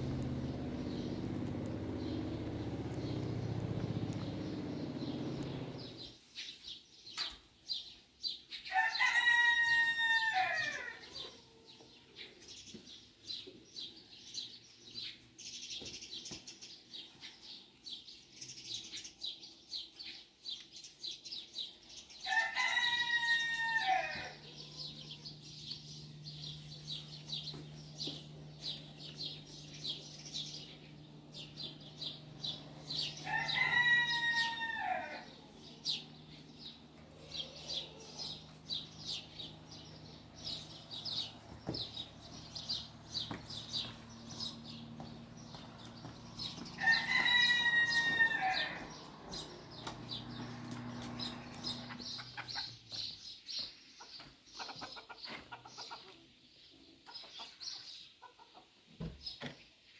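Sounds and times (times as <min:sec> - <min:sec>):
small birds chirping: 0:00.0 - 0:09.2, 0:10.7 - 0:59.9
rooster crowing: 0:08.7 - 0:11.4, 0:22.2 - 0:25.5, 0:32.2 - 0:36.0, 0:46.5 - 0:52.1.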